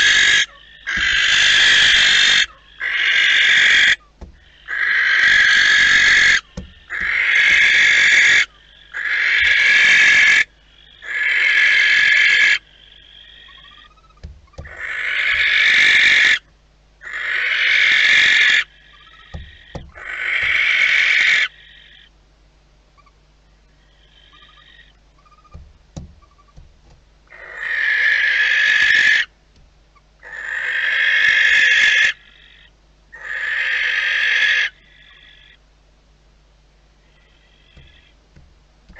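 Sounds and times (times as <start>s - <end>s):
barn owl hissing calls: 0.0s - 22.2s, 23.8s - 26.6s, 27.3s - 29.4s, 30.2s - 35.6s, 37.0s - 38.2s
soft knocks: 4.2s - 4.5s, 6.5s - 7.6s, 14.2s - 14.8s, 19.3s - 20.6s, 25.5s - 27.1s, 37.8s - 38.9s.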